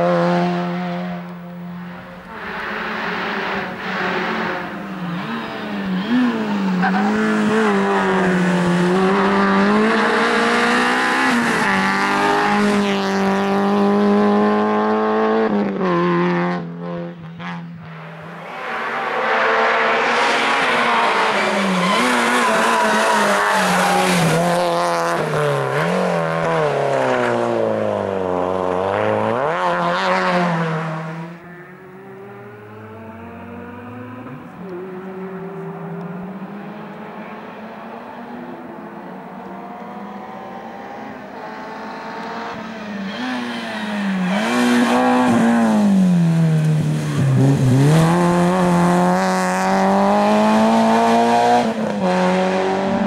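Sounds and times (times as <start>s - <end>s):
rally car engine revving: 0.0s - 53.0s.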